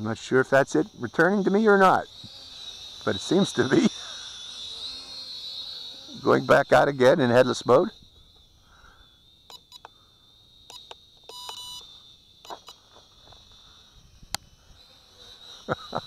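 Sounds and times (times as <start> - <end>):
sharp clicks: 9.4 - 10.0, 10.7 - 11.6
electronic beep: 10.7 - 12.8.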